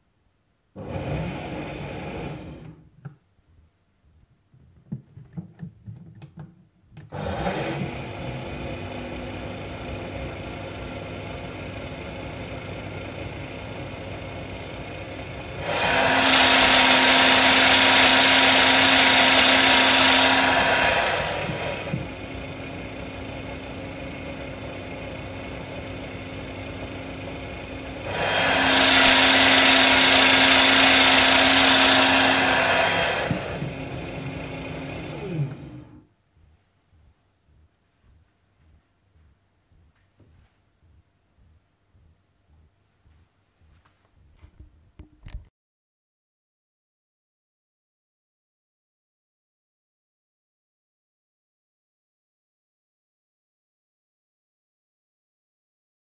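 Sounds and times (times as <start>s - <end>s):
blender running: 0.8s - 2.8s, 7.1s - 36.1s.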